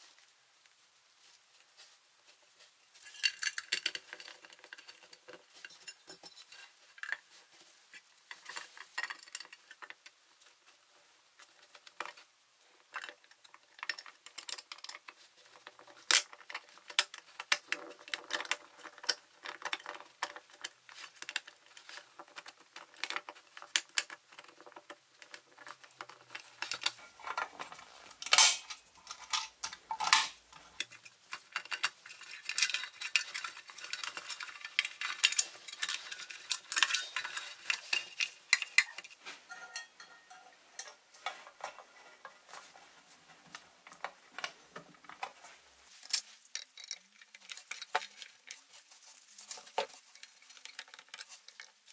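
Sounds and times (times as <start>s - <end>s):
small metal parts clinking: 3.0s - 7.3s, 28.2s - 41.0s, 46.0s - 51.9s.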